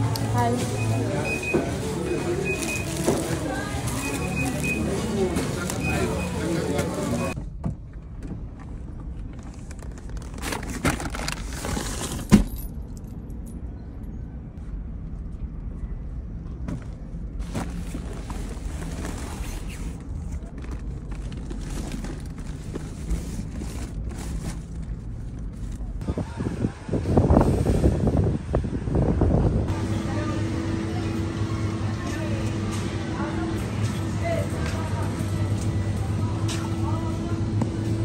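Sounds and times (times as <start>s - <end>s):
plastic bags rustling: 0.0s - 7.4s, 9.5s - 12.3s, 17.4s - 25.8s.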